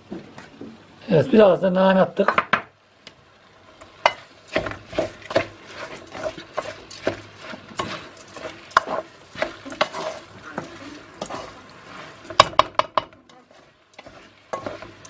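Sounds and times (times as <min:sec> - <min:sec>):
wooden spoon scraping pot: 0:03.8 - 0:15.0.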